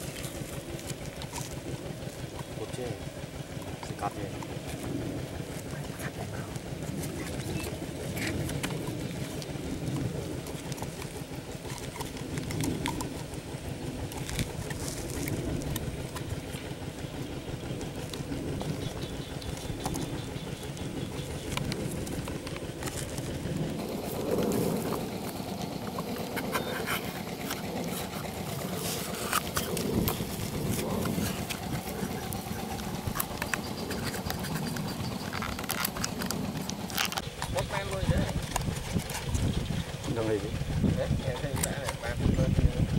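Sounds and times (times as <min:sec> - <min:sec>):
low outdoor background: 0:00.0 - 0:42.9
knife and scissors cutting cardboard: 0:06.4 - 0:16.4, 0:21.2 - 0:39.6.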